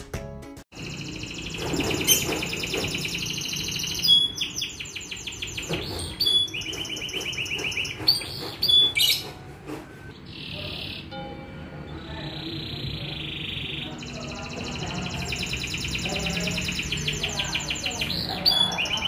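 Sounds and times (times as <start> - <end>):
canary singing trills: 0.8 - 19.0.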